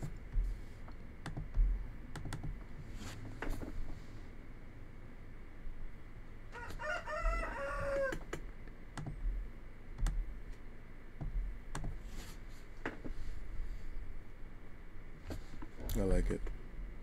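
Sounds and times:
computer mouse clicks: 0:00.8 - 0:02.6, 0:09.0 - 0:09.2, 0:11.7 - 0:12.0.

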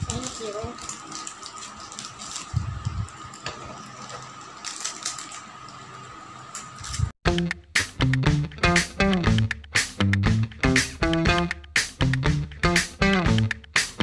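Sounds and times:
plastic wrappers crinkling and tearing: 0:00.0 - 0:06.1
crackly clicks: 0:00.0 - 0:07.6.

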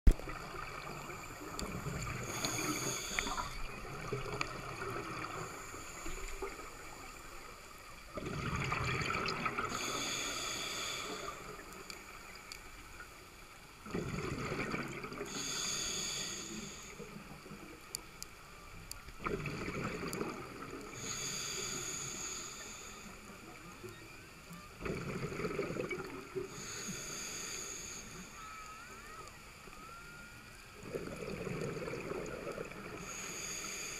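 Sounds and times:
exhaled bubbles burbling: 0:00.1 - 0:05.5, 0:08.1 - 0:09.9, 0:13.8 - 0:15.3, 0:19.2 - 0:21.0, 0:24.8 - 0:26.6, 0:30.8 - 0:33.1
regulator breathing hiss: 0:02.1 - 0:03.8, 0:05.2 - 0:07.5, 0:09.6 - 0:12.8, 0:15.3 - 0:17.2, 0:20.9 - 0:23.4, 0:26.4 - 0:28.7, 0:33.0 - 0:33.9.

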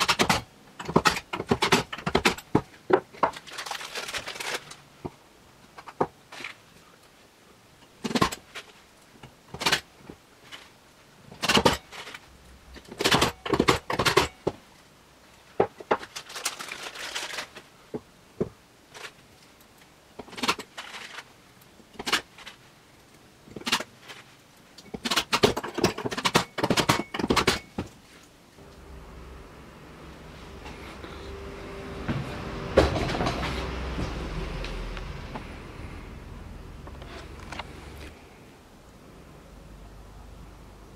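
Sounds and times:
plastic packaging rustling: 0:03.1 - 0:05.2, 0:15.8 - 0:17.8, 0:20.2 - 0:22.7.

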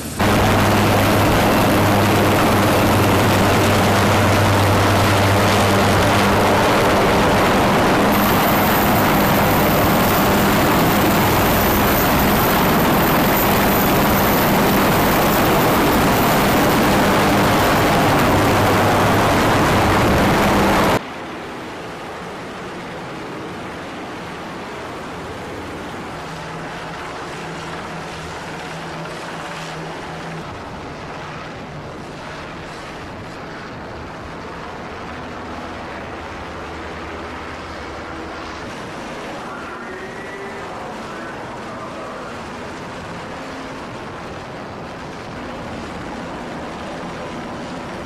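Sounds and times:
helicopter rotor and turbine rush: 0:00.0 - 0:48.0
low hum: 0:00.0 - 0:48.0
sea water rushing along hull: 0:00.0 - 0:48.0.

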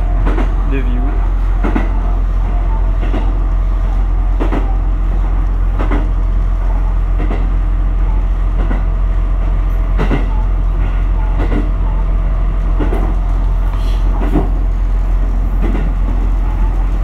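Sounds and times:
rail joint clacks: 0:00.0 - 0:07.6, 0:08.5 - 0:17.0.

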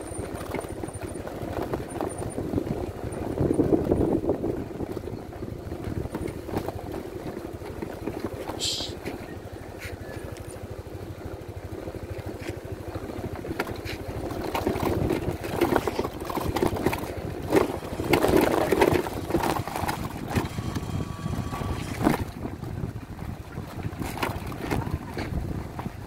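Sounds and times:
scooter engine running under load: 0:00.0 - 0:26.0
knocks from bumpy ride: 0:13.5 - 0:22.7, 0:23.6 - 0:26.0.

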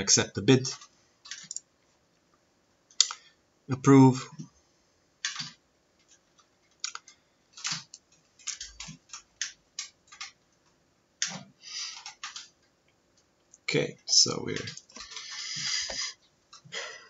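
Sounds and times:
mouse and keyboard clicks: 0:05.3 - 0:10.4.

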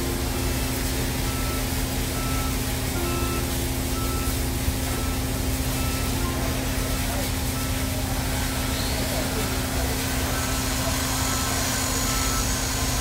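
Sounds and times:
heavy machinery drone: 0:00.0 - 0:13.0
warning beeper: 0:10.3 - 0:12.9.

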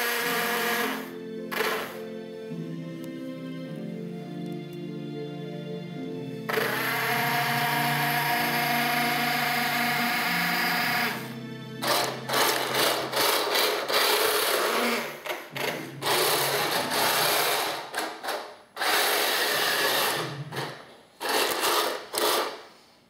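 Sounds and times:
toy tank motors whirring: 0:00.0 - 0:02.0, 0:06.5 - 0:11.2, 0:11.8 - 0:22.7
multi-tone hum: 0:06.5 - 0:13.2.

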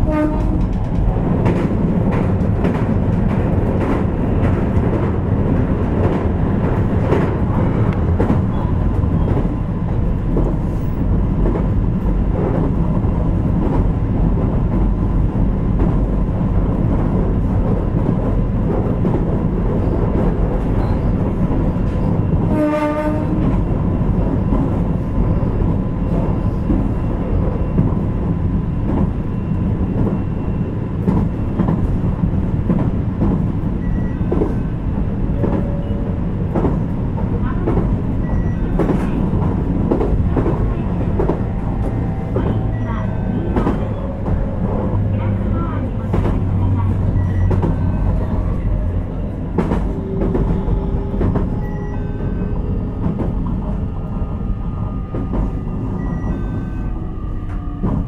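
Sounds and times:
train horn blast: 0:00.0 - 0:00.8, 0:22.5 - 0:23.5
electric train rumbling: 0:00.0 - 0:58.0
rail-joint clicks: 0:00.1 - 0:14.9, 0:30.9 - 0:58.0.

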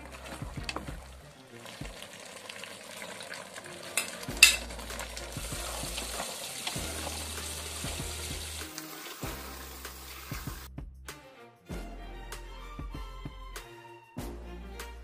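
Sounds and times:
soup sizzling: 0:00.0 - 0:10.7.

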